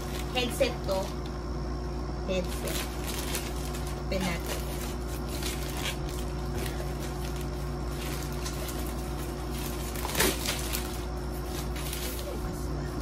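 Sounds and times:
steady low hum: 0:00.0 - 0:13.0
plastic pouch crinkling: 0:02.4 - 0:12.3
scissors cutting plastic: 0:02.6 - 0:12.3.

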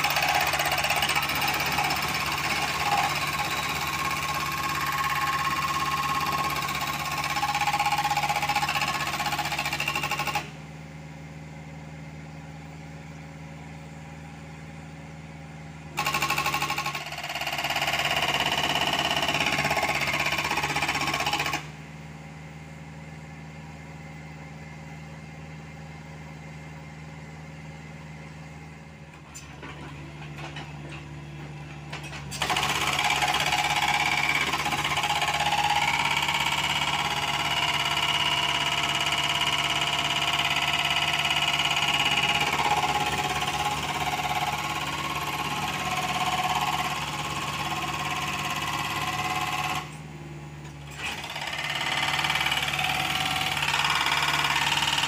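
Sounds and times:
hydraulic breaker hammering rock: 0:00.0 - 0:10.6, 0:16.0 - 0:21.7, 0:32.0 - 0:50.0, 0:50.9 - 0:55.0.

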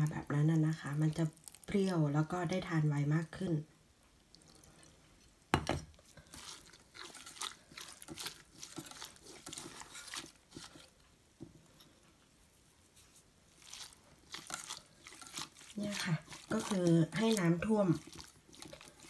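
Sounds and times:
hands squishing wet flowers: 0:00.0 - 0:02.7, 0:06.0 - 0:11.0, 0:12.5 - 0:19.0.

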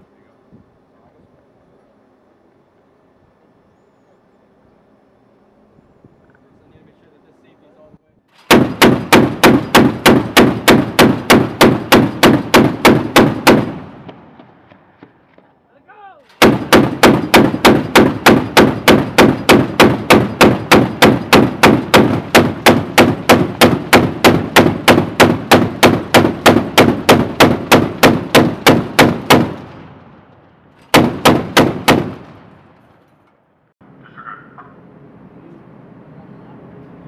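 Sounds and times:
chain gun firing: 0:08.4 - 0:13.8, 0:16.2 - 0:29.8, 0:30.8 - 0:33.1.

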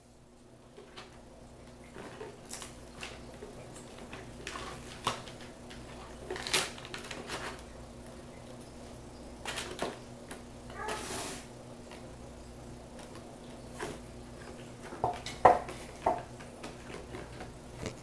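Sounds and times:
plastic packaging crinkling: 0:01.6 - 0:07.8.

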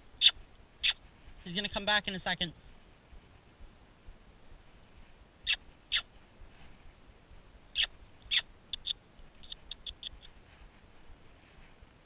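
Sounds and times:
songbird calling: 0:00.2 - 0:01.0, 0:05.4 - 0:06.1, 0:07.7 - 0:10.4.

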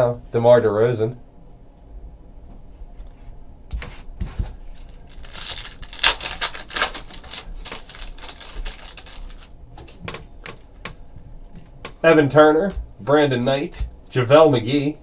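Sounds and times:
plastic wrapper crinkling: 0:04.6 - 0:10.3.

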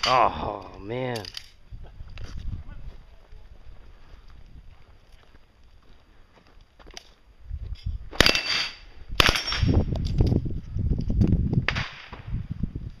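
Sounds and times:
gunshots: 0:08.2 - 0:09.8.

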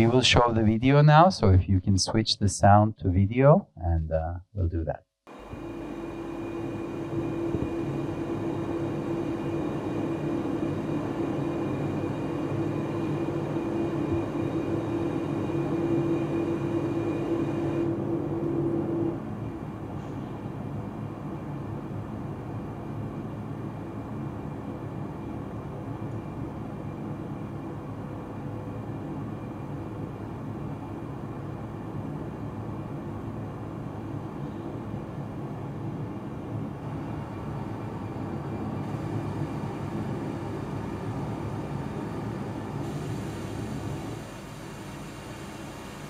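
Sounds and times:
mill machinery low rumble: 0:05.4 - 0:44.2.

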